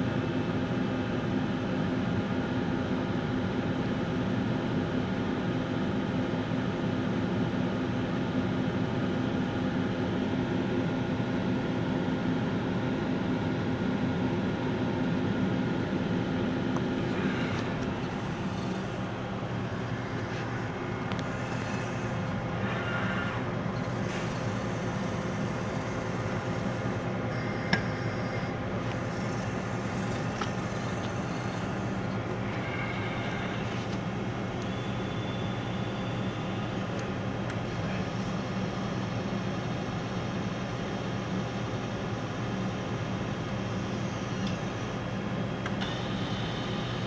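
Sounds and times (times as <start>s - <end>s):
machine hum with steady tones: 0.0s - 47.0s
motor whirs: 17.0s - 37.1s.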